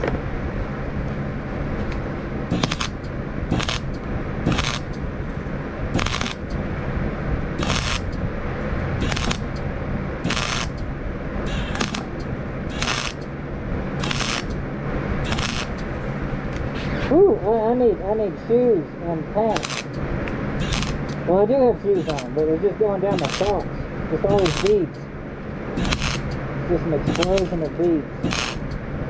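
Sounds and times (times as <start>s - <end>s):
welder hum: 0.0s - 16.9s, 18.6s - 29.0s
welding arc crackling: 1.8s - 6.7s, 7.5s - 16.1s, 19.4s - 25.1s, 25.7s - 28.9s.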